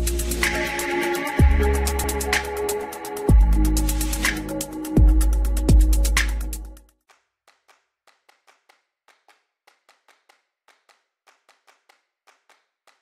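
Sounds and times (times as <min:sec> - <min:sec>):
electronic intro music: 0:00.0 - 0:06.8.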